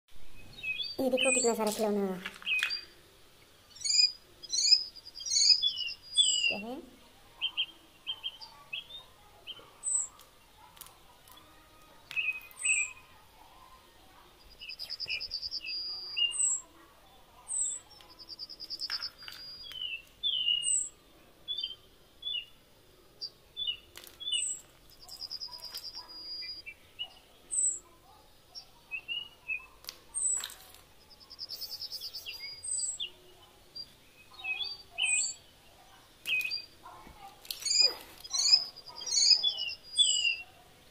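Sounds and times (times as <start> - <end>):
birds chirping: 0.2 - 40.9
buzzy bird trills: 3.7 - 6.7, 14.4 - 16.7, 24.2 - 27.9, 29.0 - 33.1, 36.4 - 40.5.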